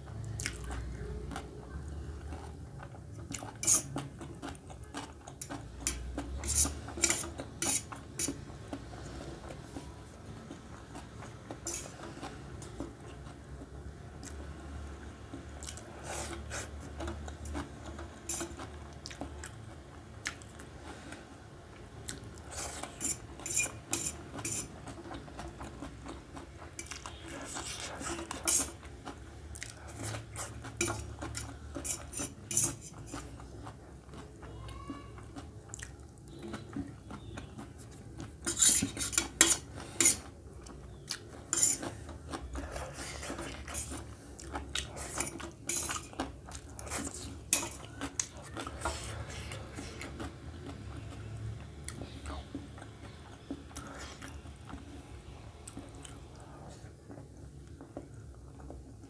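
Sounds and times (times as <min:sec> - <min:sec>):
fork clinking on metal plate: 0:45.1 - 0:46.1.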